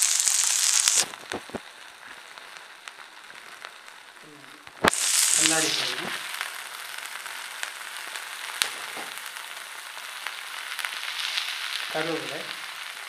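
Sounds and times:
onions sizzling in hot oil: 0.0 - 13.0.

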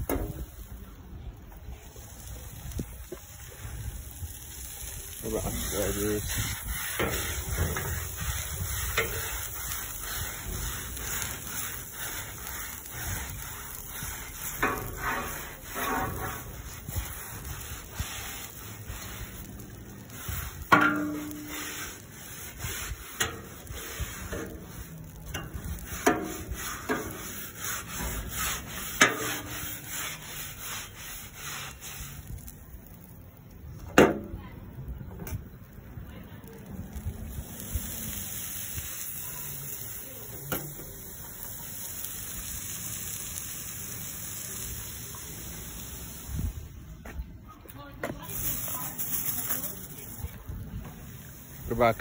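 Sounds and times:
scouring pad scrubbing steel griddle: 4.6 - 33.0, 48.1 - 52.0.

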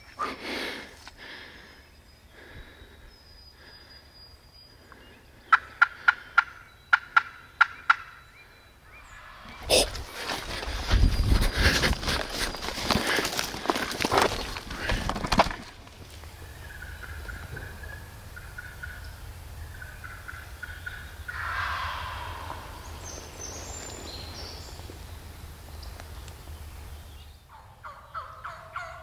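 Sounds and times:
turkey gobbling: 5.5 - 8.2, 16.4 - 23.6, 27.5 - 29.0
footsteps: 9.6 - 16.3.

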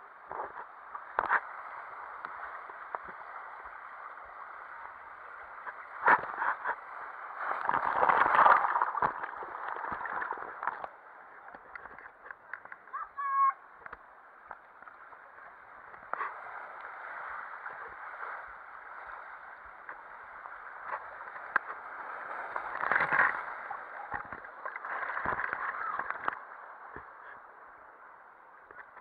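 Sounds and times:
water rushing along a water slide: 0.0 - 29.0
person yelling: 13.0 - 13.6.

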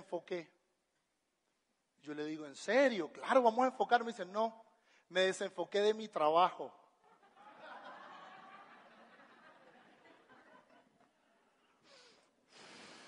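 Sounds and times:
faint audience laughter: 7.0 - 11.8.

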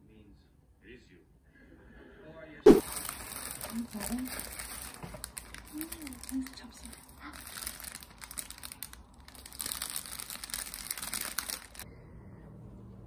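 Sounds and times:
plastic and paper bags crinkling: 2.7 - 11.9.

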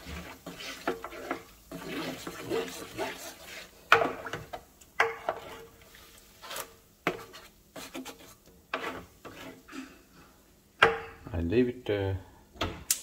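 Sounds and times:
rubbing on metal: 0.0 - 3.7.

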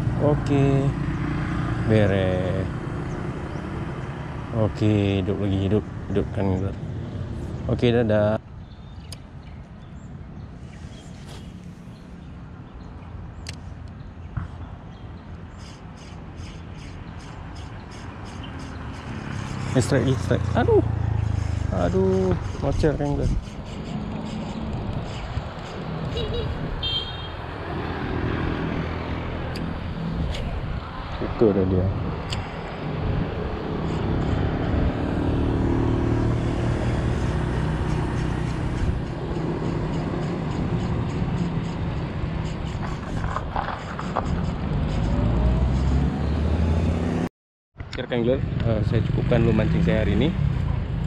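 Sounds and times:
fishing reel swishing: 23.3 - 25.8.

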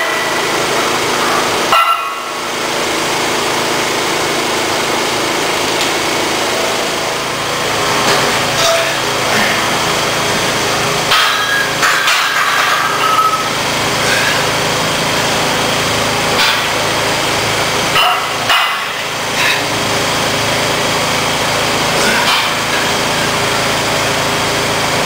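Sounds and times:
steady mechanical hum: 0.0 - 25.0
barbell plates clinking: 11.1 - 13.5.

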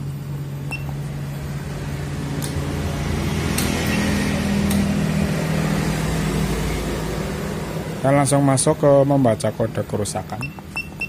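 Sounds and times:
engine running: 0.0 - 9.6
scan tool beep: 0.7 - 1.0, 10.4 - 11.0.

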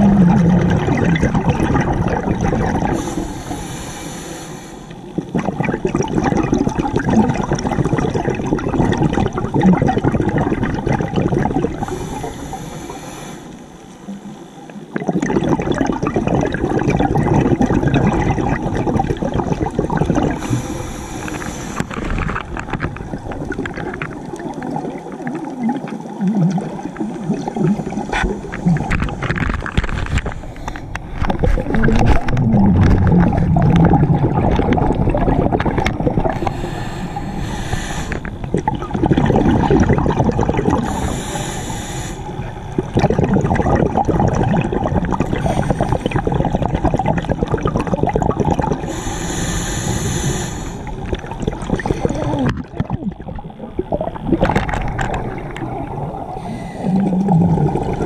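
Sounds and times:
underwater bubbles gurgling: 0.0 - 58.0
regulator hissing: 36.4 - 38.8, 40.8 - 43.0, 48.8 - 51.2.

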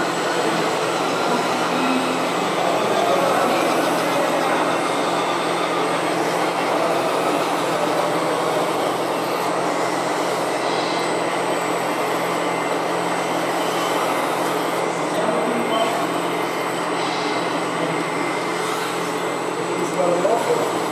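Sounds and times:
toy vehicles mechanical drone: 0.0 - 10.5.

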